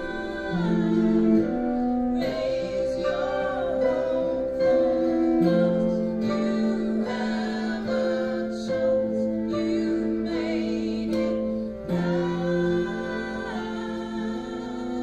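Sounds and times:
acoustic guitars: 0.0s - 15.0s
violin and cello held notes: 0.0s - 15.0s
woman and man singing: 0.0s - 15.0s.

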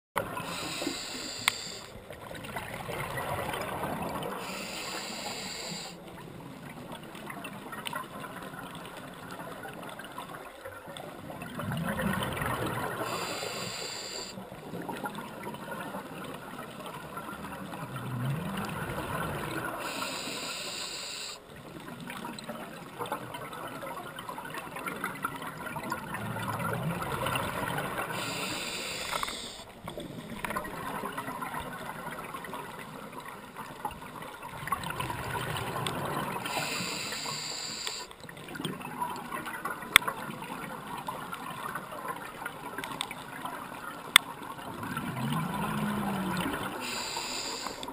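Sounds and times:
exhaled air bubbling underwater: 0.2s - 47.9s
regulator inhale hiss: 0.4s - 2.0s, 4.4s - 6.0s, 13.0s - 14.4s, 19.8s - 21.4s, 28.2s - 29.7s, 36.5s - 38.1s, 46.8s - 47.9s.

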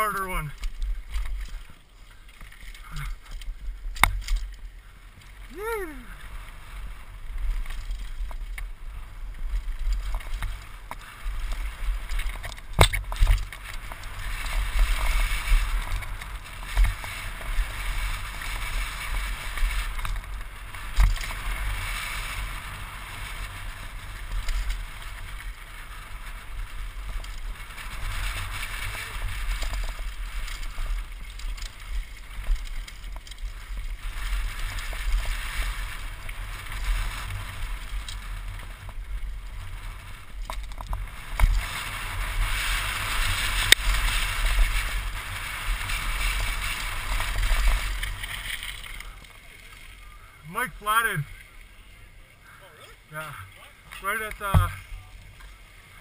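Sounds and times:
tyres rushing on dirt and gravel: 0.0s - 56.0s
bike rattling and knocking: 6.9s - 49.4s, 54.1s - 55.5s.

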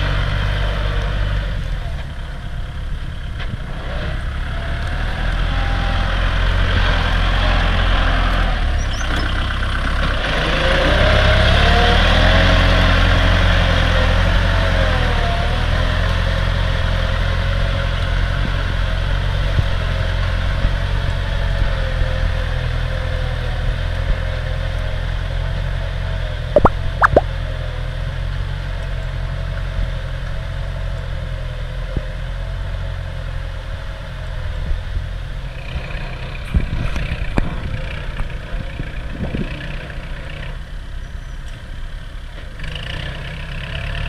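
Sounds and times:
tractor diesel engine under load: 0.0s - 26.5s.

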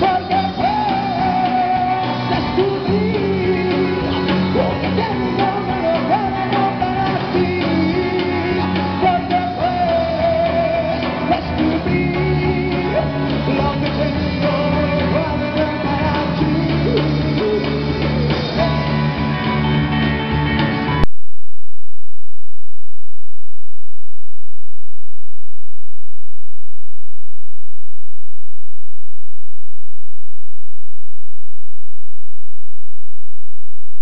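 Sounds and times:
man singing: 0.0s - 19.3s
live rock band playing: 0.0s - 21.0s.

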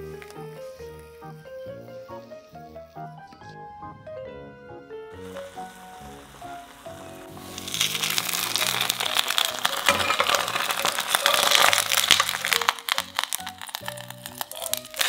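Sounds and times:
background music: 0.0s - 15.0s
potato slices sizzling in oil: 5.2s - 15.0s.

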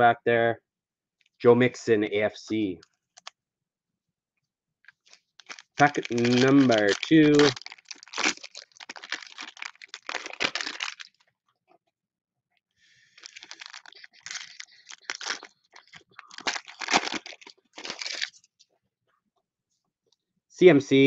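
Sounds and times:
foil wrapper crinkling: 4.9s - 11.2s, 13.0s - 18.5s.

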